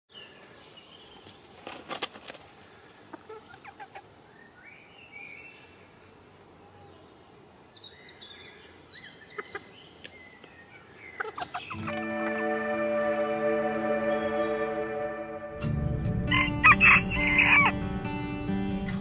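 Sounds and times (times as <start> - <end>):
soft outdoor hush: 0.1 - 15.6
chickens clucking and chirping: 1.2 - 4.3, 8.8 - 14.8.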